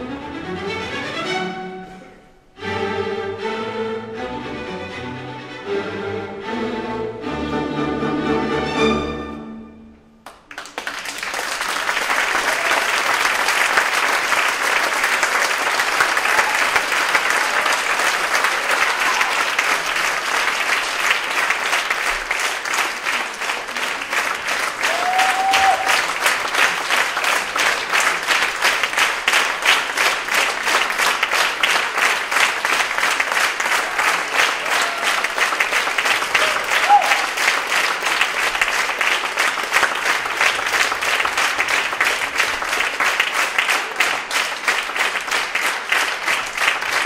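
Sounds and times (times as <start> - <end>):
audience applauding: 10.2 - 47.0.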